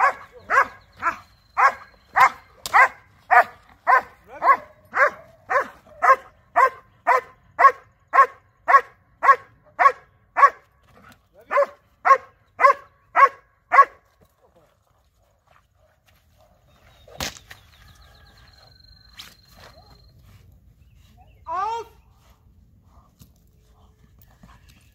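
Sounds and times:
large dog barking: 0:00.0 - 0:10.6, 0:11.4 - 0:14.0.

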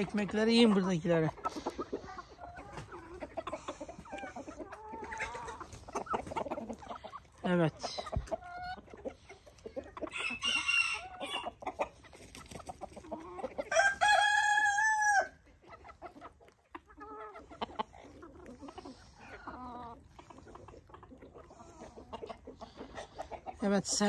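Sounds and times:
chickens clucking and squawking: 0:00.0 - 0:24.0
rooster crowing: 0:10.1 - 0:11.4, 0:13.7 - 0:15.3.

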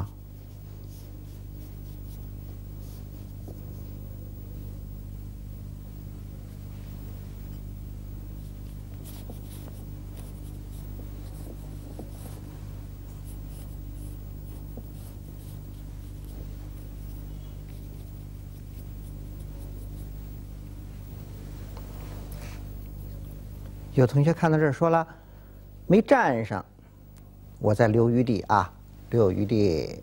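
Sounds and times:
brush swishing on paper: 0:00.0 - 0:04.0, 0:08.3 - 0:23.6
low electrical hum: 0:00.0 - 0:30.0.

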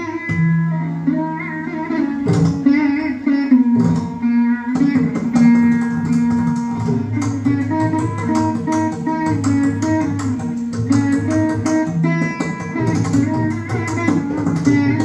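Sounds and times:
plucked veena melody: 0:00.0 - 0:15.0
drum strokes: 0:03.8 - 0:15.0.

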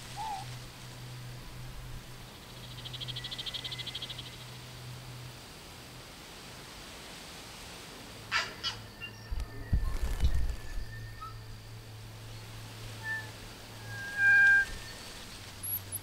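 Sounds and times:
whistled bird notes: 0:00.0 - 0:00.5, 0:08.5 - 0:11.7, 0:12.3 - 0:16.0
steady low hum: 0:00.0 - 0:06.1, 0:08.8 - 0:16.0.

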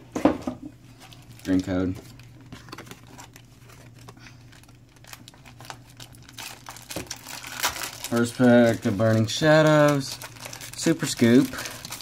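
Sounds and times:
foil wrapper crinkling and tearing: 0:01.1 - 0:12.0.

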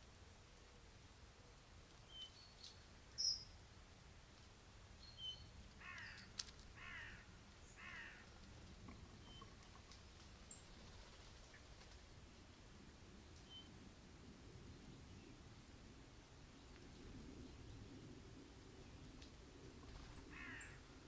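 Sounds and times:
small birds chirping: 0:01.9 - 0:03.9, 0:04.9 - 0:11.9
distant crow cawing: 0:05.8 - 0:08.3, 0:20.3 - 0:20.8.

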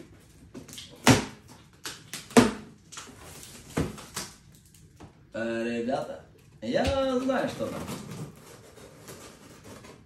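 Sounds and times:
cardboard rustling and scraping: 0:07.0 - 0:10.0.

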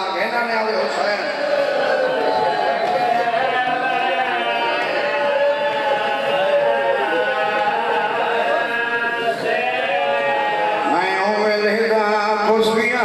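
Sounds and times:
man chanting through microphone: 0:02.8 - 0:13.0.

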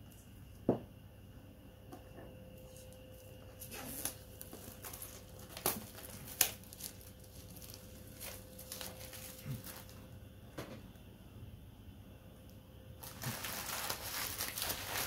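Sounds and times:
plastic wrapping crinkling: 0:02.6 - 0:10.0, 0:13.0 - 0:15.0.

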